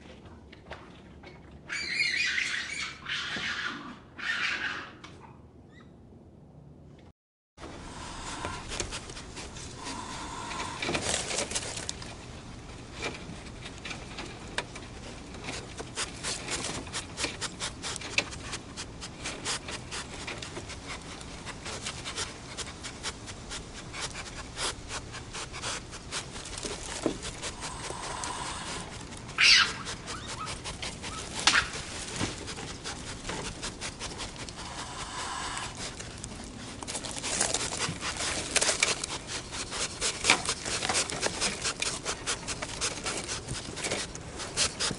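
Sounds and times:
raccoon high-pitched call: 0:01.7 - 0:05.0, 0:27.7 - 0:31.8
claws scratching on wire: 0:08.4 - 0:44.9.

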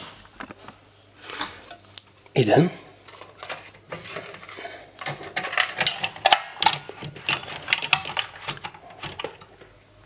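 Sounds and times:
metal parts clicking and knocking: 0:03.1 - 0:09.5.

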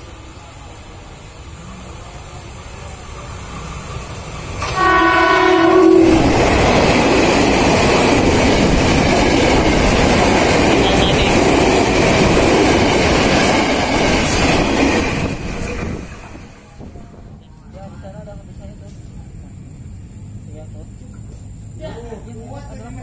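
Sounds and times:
train passing wheels on rail: 0:00.0 - 0:23.0
train horn: 0:04.6 - 0:06.6, 0:10.8 - 0:11.5.

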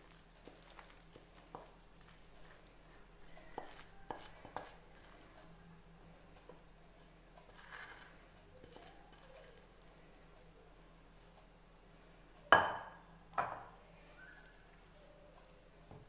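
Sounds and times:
spatula scraping sticky mixture: 0:00.1 - 0:05.6, 0:06.4 - 0:09.9.

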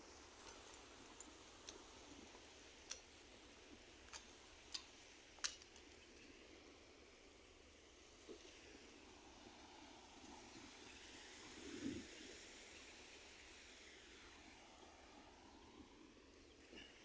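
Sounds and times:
faint sharp clicks: 0:00.4 - 0:03.2, 0:04.0 - 0:06.3.

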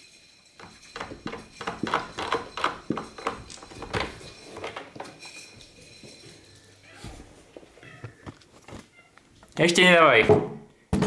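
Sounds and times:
door rattling against frame: 0:00.6 - 0:04.9.

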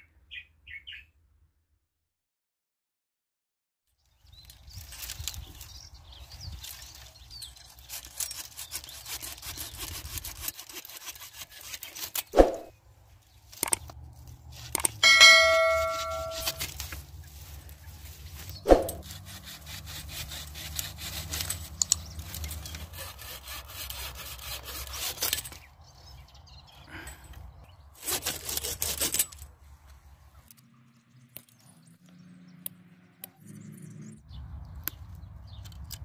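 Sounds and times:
hand saw cutting branches: 0:04.6 - 0:12.8, 0:13.5 - 0:25.7, 0:28.0 - 0:29.6
bright ringing chime: 0:15.0 - 0:16.6
sharp knocks: 0:15.0 - 0:16.6.

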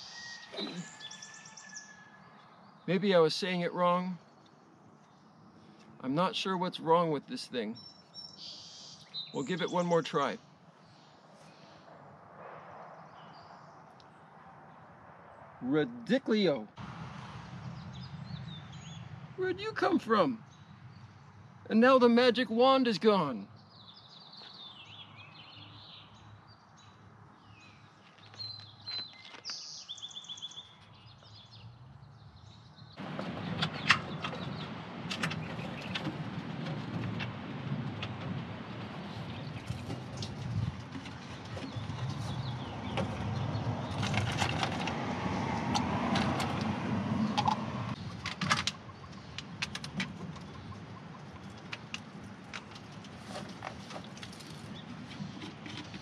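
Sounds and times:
small birds chirping: 0:00.0 - 0:11.8, 0:17.4 - 0:21.9, 0:22.8 - 0:36.2, 0:39.1 - 0:44.9, 0:47.2 - 0:56.0
handling noise with knocks: 0:33.0 - 0:56.0.

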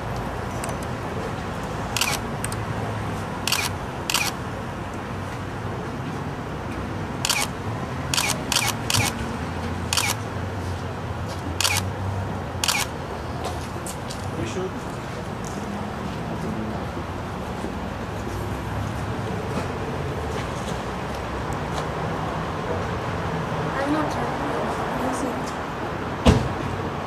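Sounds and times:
camera shutters clicking: 0:02.0 - 0:02.6, 0:03.5 - 0:04.4, 0:07.2 - 0:07.5, 0:08.2 - 0:09.2, 0:09.9 - 0:10.2, 0:11.6 - 0:11.9, 0:12.6 - 0:12.9.

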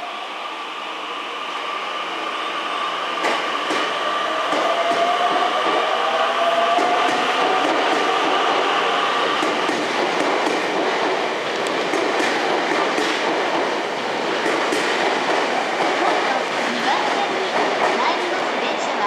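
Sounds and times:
train wheels rumbling on rail: 0:00.0 - 0:19.0
clacks over rail joints: 0:09.4 - 0:16.4.

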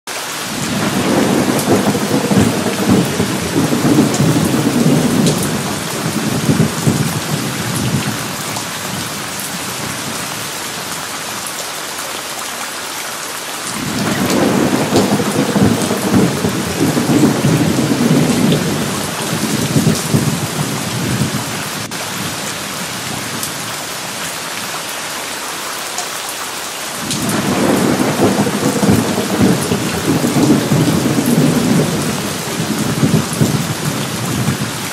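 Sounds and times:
steady rain: 0:00.1 - 0:34.9
thunder rolling: 0:00.5 - 0:10.2, 0:13.8 - 0:22.4, 0:27.0 - 0:34.8.

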